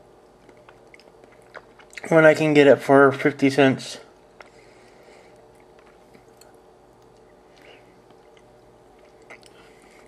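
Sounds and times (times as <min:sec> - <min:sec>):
low steady hum: 0:00.0 - 0:10.0
quiet chewing: 0:00.1 - 0:02.1, 0:04.2 - 0:10.0.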